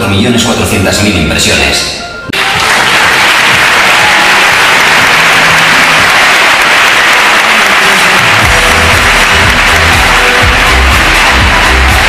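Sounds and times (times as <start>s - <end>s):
large audience applauding: 2.3s - 12.0s
music with low beat: 8.2s - 12.0s.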